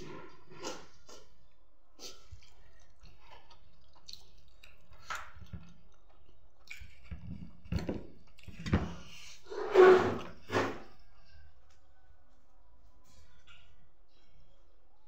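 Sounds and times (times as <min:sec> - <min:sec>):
clicks and knocks of eating: 0:00.3 - 0:09.1.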